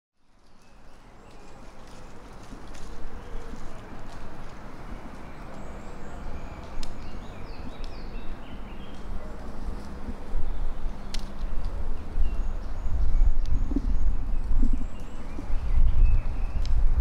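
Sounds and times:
low rumble on microphone: 6.0 - 17.0.

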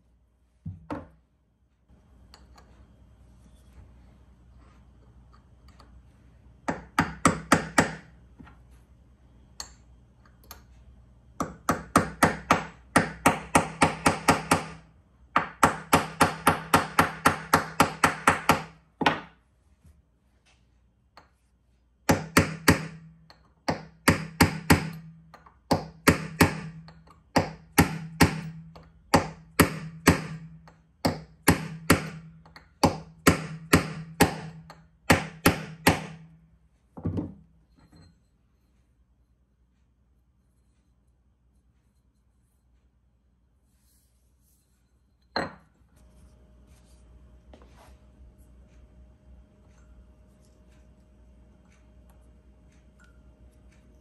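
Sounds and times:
hammer tapping metal pins: 22.1 - 36.3.

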